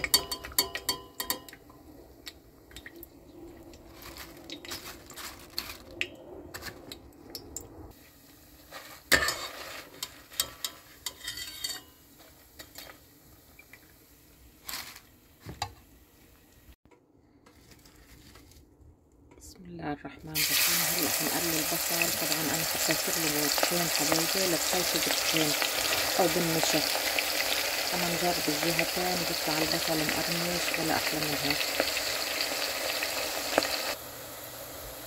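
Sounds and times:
bread sizzling in hot oil: 7.9s - 15.0s, 20.4s - 35.0s
metal skimmer scraping a pot: 9.1s - 12.9s.

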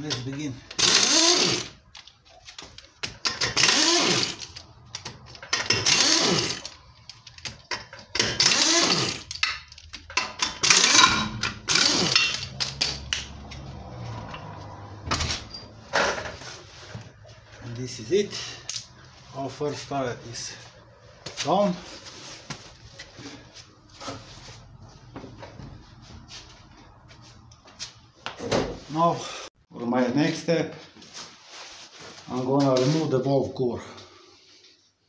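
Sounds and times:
impact wrench bursts: 0.7s - 1.8s, 3.2s - 6.8s, 7.8s - 13.3s.

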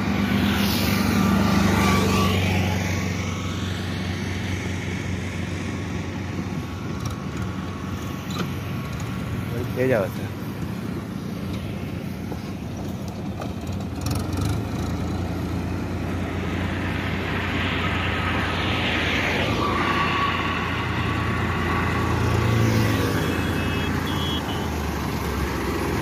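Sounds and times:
tractor diesel engine running: 3.6s - 18.8s.

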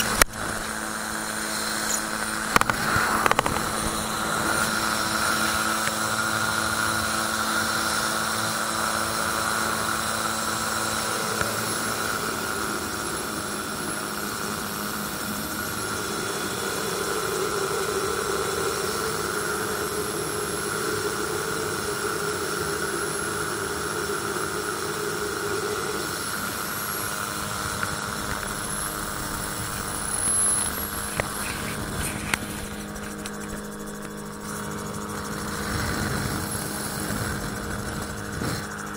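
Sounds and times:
rushing air noise: 0.0s - 7.0s
engine and propeller drone: 0.0s - 38.9s.

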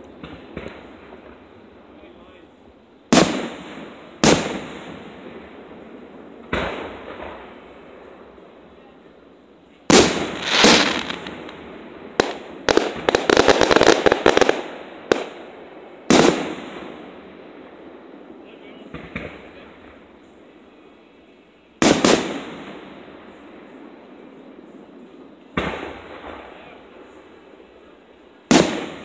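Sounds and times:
crackling firework pops: 0.0s - 1.4s, 4.2s - 4.8s, 6.5s - 7.5s, 9.9s - 15.4s, 16.1s - 17.0s, 18.9s - 20.0s, 25.5s - 26.7s, 28.5s - 29.0s
firework booms: 0.0s - 1.8s, 3.1s - 8.6s, 9.8s - 17.8s, 18.5s - 20.3s, 21.8s - 29.0s.

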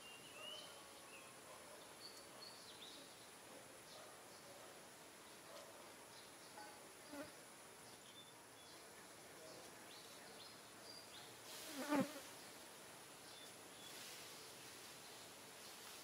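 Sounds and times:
flying insect buzzing past: 11.5s - 12.4s.

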